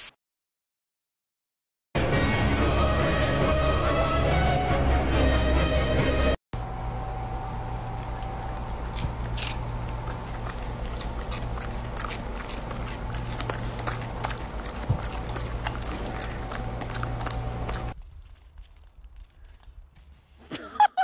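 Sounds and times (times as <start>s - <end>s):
steady low hum: 6.6s - 20.1s
dog chewing a chip: 7.6s - 18.7s.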